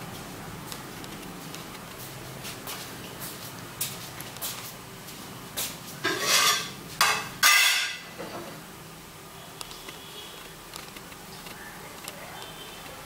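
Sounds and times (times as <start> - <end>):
claws ticking: 9.6 - 13.0.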